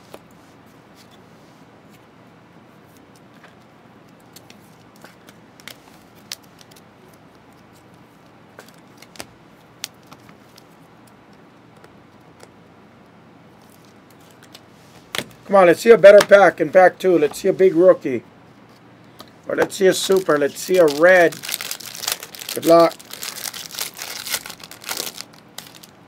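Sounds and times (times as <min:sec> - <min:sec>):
low steady hiss: 0:00.0 - 0:26.0
plastic wrapper crinkling: 0:19.7 - 0:26.0
sharp crackles: 0:20.0 - 0:26.0.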